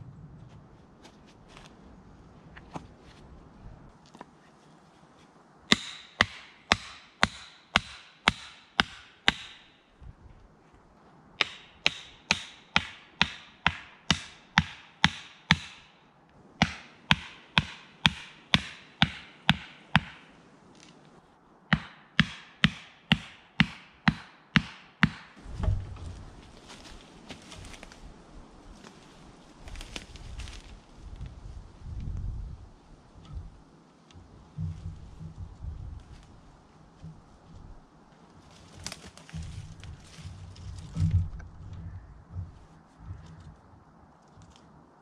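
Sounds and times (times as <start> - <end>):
hammer driving stake: 5.7 - 9.6, 11.4 - 15.9, 16.6 - 20.3, 21.7 - 25.8
dull thump: 25.4 - 26.2.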